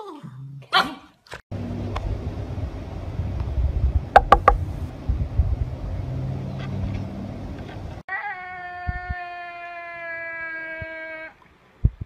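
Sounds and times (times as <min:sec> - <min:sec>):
low rumbling microphone noise: 0:01.6 - 0:05.9.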